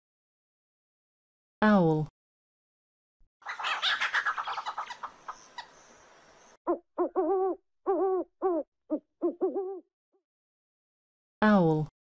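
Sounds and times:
owl hooting: 0:03.4 - 0:05.9, 0:06.7 - 0:09.8.

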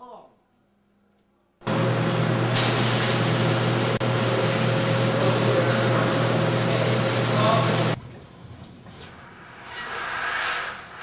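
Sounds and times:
machinery hissing and humming: 0:01.6 - 0:08.0.

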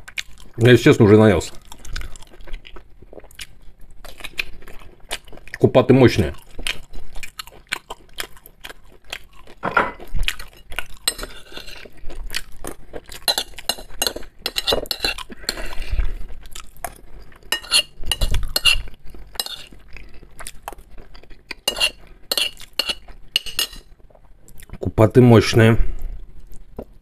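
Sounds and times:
close chewing: 0:00.0 - 0:00.6, 0:01.4 - 0:24.8
spoon scraping ceramic plate: 0:11.0 - 0:11.9, 0:13.3 - 0:15.8, 0:17.5 - 0:19.7, 0:21.6 - 0:23.9.

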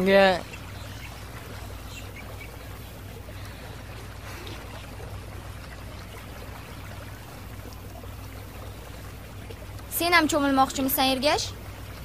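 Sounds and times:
flowing water rushing: 0:00.0 - 0:12.0
low hum: 0:00.0 - 0:12.0.

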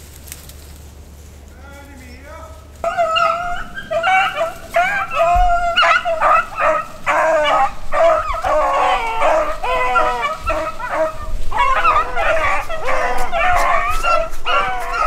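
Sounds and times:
beagles baying: 0:00.8 - 0:15.0.

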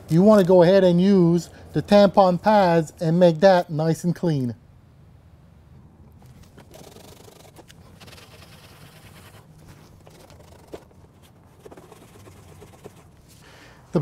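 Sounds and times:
pad scraping on plastic: 0:06.3 - 0:13.2.

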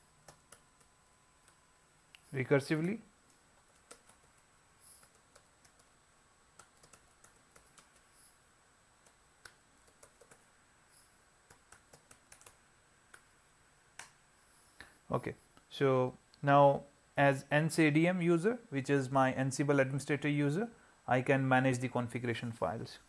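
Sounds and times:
computer keyboard typing: 0:00.2 - 0:01.6, 0:02.8 - 0:08.2, 0:09.0 - 0:10.5, 0:11.4 - 0:13.3.

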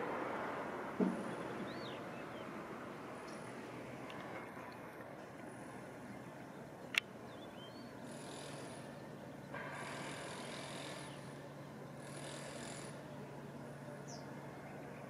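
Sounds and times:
hiss: 0:09.6 - 0:11.4.

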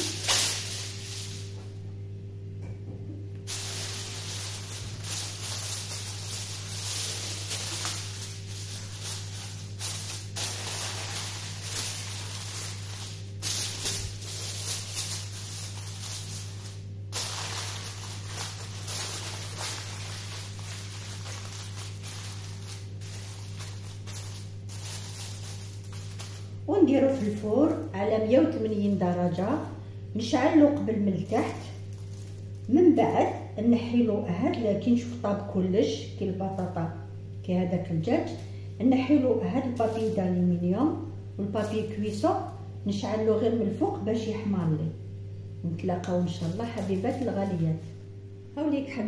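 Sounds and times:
aluminium foil crinkling: 0:00.0 - 0:01.6, 0:03.5 - 0:29.8, 0:30.4 - 0:33.5, 0:36.4 - 0:36.9, 0:39.4 - 0:42.8, 0:46.0 - 0:48.2
steady low hum: 0:00.0 - 0:49.0.

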